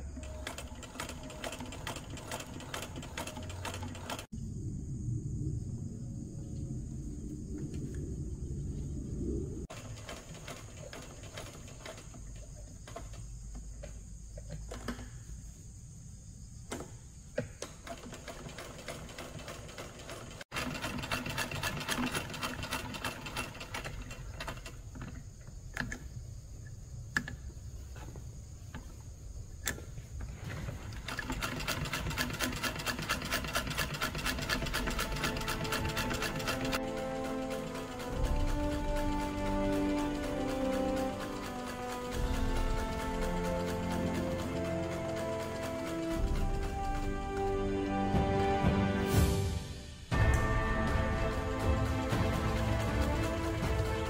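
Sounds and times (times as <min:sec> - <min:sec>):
sewing machine stitching: 0:00.0 - 0:04.3, 0:09.7 - 0:13.4, 0:17.6 - 0:25.2, 0:30.5 - 0:47.8, 0:51.3 - 0:54.0.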